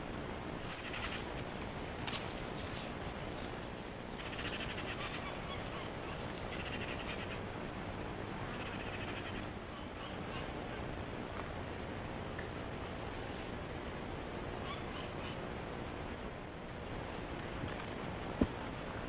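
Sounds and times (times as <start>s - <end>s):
steady outdoor hiss: 0.0s - 19.0s
rattling animal calls: 0.6s - 1.4s, 4.2s - 7.5s, 8.5s - 10.5s.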